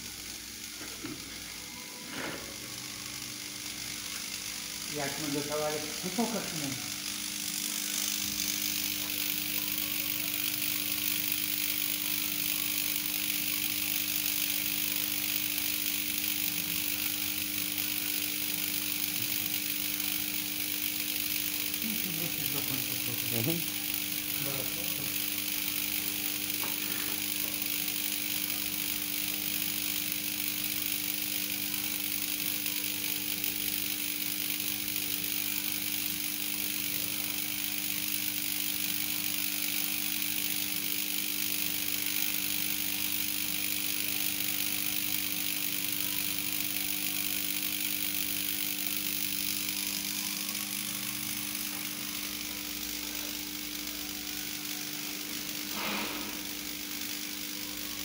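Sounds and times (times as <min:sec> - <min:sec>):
transformer humming: 0:00.6 - 0:27.6.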